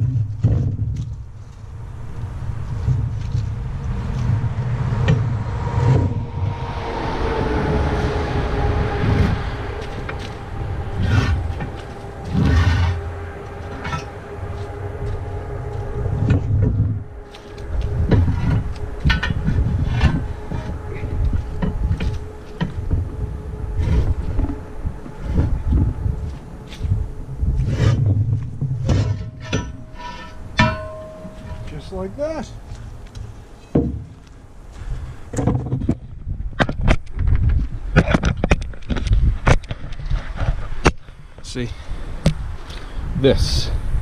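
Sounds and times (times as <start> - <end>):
metal knocks and clunks: 0.0 - 1.4, 15.7 - 27.0, 27.6 - 32.7, 33.6 - 34.3
steady droning tone: 0.0 - 36.2.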